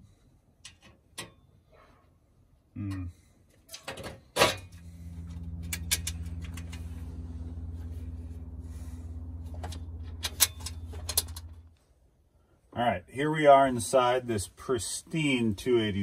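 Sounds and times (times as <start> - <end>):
low machine hum: 4.6 - 11.8
metal panel clicks and clanks: 9.6 - 11.6.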